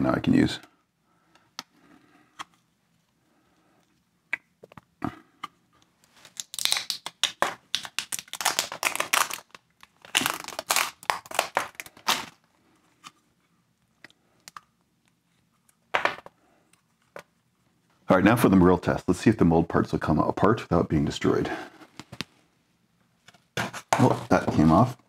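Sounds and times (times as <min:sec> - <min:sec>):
tape crinkling and crackling: 0:05.8 - 0:13.1
tape peeling and tearing: 0:06.2 - 0:12.4.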